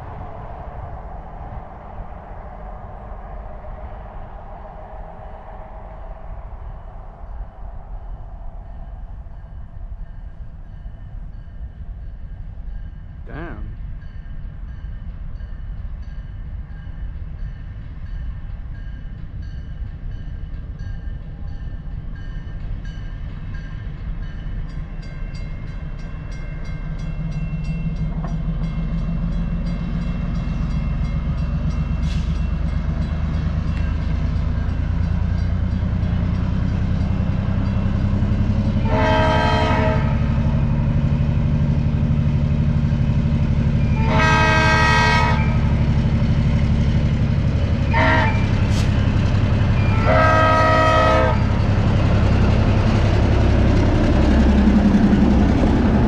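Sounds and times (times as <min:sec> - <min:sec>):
diesel locomotive engine: 0:00.0 - 0:56.0
train horn blasts: 0:38.7 - 0:40.4, 0:43.8 - 0:45.8, 0:47.8 - 0:49.0, 0:49.8 - 0:51.6.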